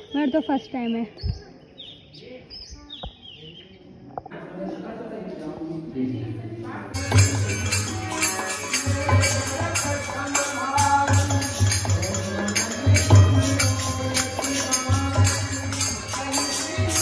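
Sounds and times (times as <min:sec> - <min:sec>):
hand cymbals clashing: 0:07.0 - 0:17.0
hand-played barrel drum: 0:07.0 - 0:17.0
harmonium: 0:07.0 - 0:17.0.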